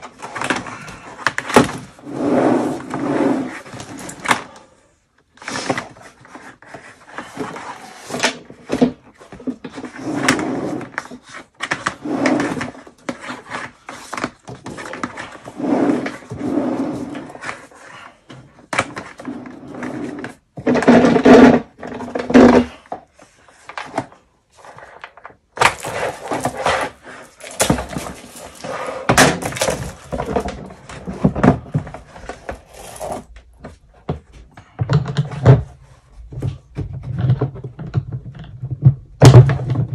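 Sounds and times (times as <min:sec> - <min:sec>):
knocks scrapes and thuds on plastic drum: 0:18.7 - 0:23.0, 0:25.6 - 0:39.9.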